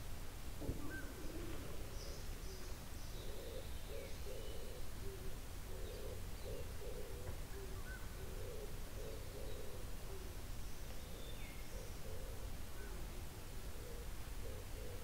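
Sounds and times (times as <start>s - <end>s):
small birds chirping: 0.7s - 13.0s
bird hooting: 3.2s - 10.3s, 11.1s - 13.2s, 13.8s - 15.0s.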